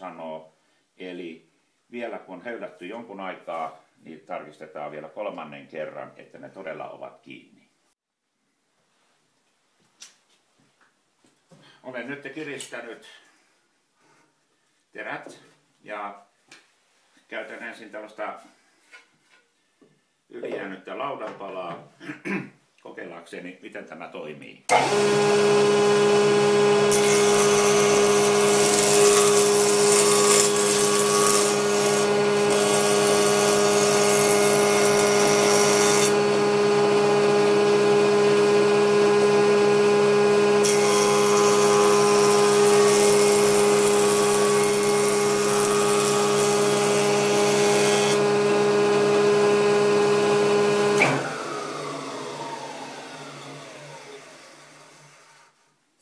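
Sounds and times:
jointer planer humming: 24.7 - 55.5
board planing hissing cut: 24.7 - 55.6.

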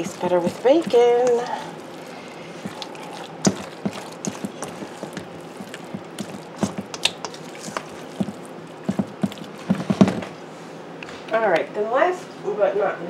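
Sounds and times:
spatula scraping steel bowl: 0.0 - 10.0.

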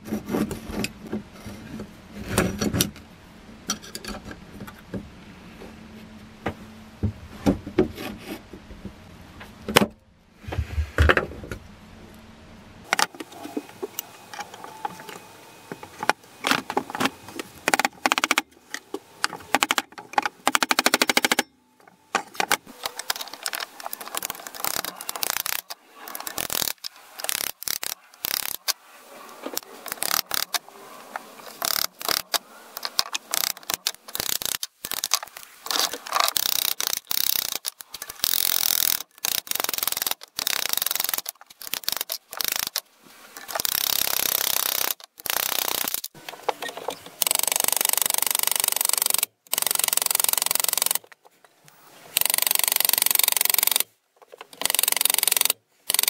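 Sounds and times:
steel clicking and knocking: 17.7 - 28.8.

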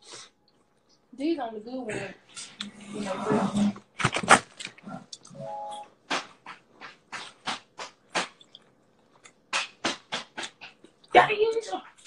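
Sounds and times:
person chewing with smacks: 6.5 - 11.1.

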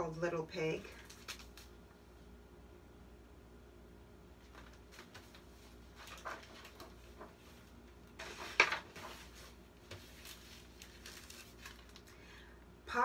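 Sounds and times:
book pages rustling: 0.9 - 1.7, 4.4 - 12.2.

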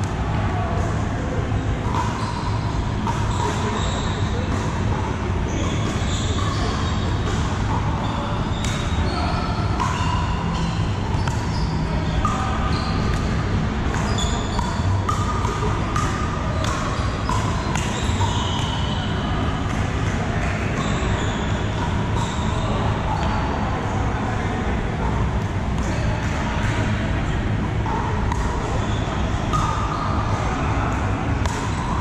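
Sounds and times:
indistinct chatter: 0.0 - 32.0
ball bouncing on hard floor: 8.5 - 19.1.

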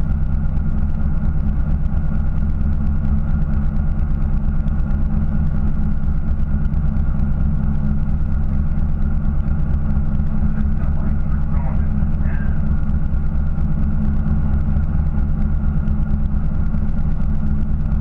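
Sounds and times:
boat engine humming: 0.0 - 18.0.

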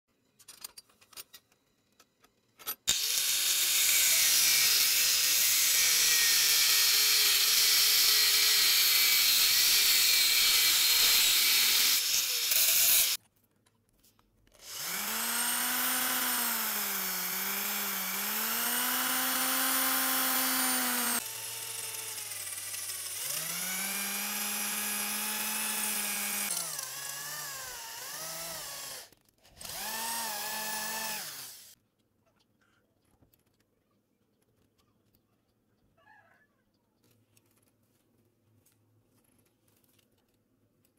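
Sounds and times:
electric drill boring into steel: 2.9 - 13.2, 14.6 - 31.8.

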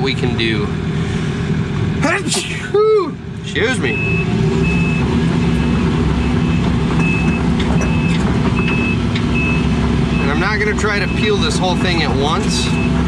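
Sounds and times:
diesel engine running: 0.0 - 13.0
high travel alarm beeps: 3.9 - 11.5.

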